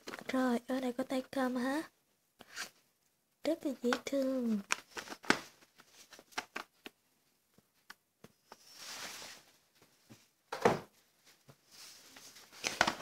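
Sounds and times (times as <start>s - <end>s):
soft rustle: 8.4s - 10.4s, 11.1s - 12.8s.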